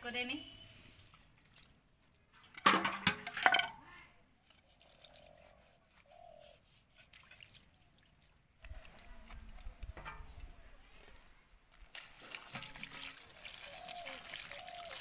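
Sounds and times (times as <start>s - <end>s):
water splashing and trickling: 0.9s - 5.9s, 6.6s - 9.8s, 10.9s - 15.0s
steel vessels knocking together: 2.6s - 3.8s.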